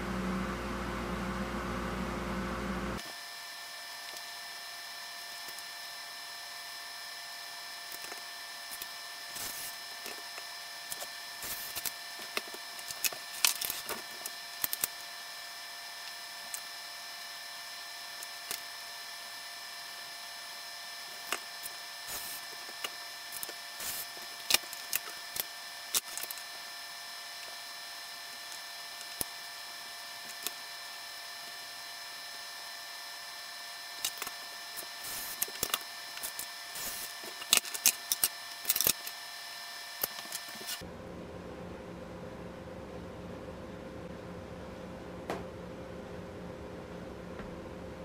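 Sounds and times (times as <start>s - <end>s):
sharp clicks and cracks: 22.8s - 26.4s.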